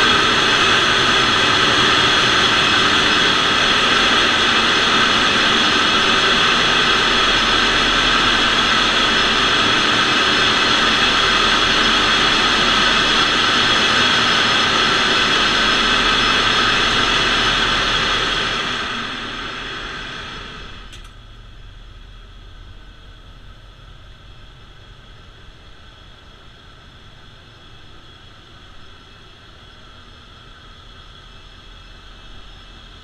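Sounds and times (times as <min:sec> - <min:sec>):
engine room machinery din: 0:00.0 - 0:27.6
whining machine tones: 0:00.0 - 0:33.0
brief click: 0:20.9 - 0:21.2.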